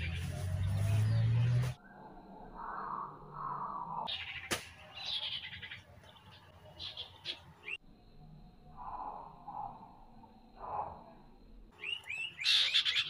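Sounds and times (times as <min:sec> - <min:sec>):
songbird chirps and trills: 0:00.0 - 0:13.0.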